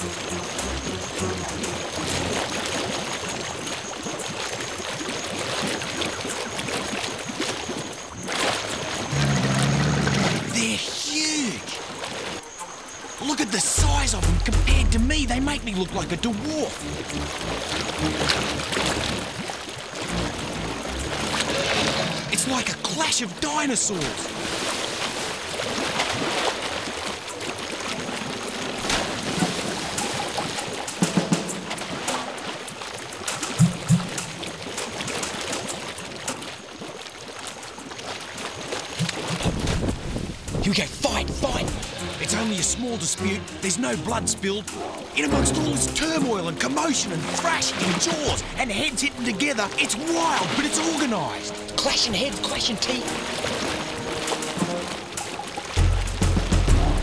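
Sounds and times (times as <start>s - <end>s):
crocodiles splashing in shallows: 0.0s - 10.9s, 16.8s - 23.1s, 23.9s - 45.2s, 46.0s - 57.0s
river water rushing and splashing: 0.0s - 57.0s.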